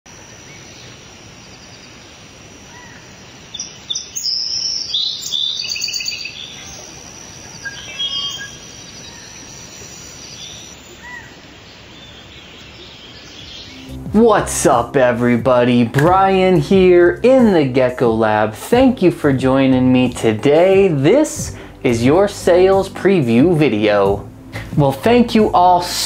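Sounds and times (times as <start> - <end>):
background hiss: 0.1 - 26.0
birds chirping and trilling: 0.3 - 14.1.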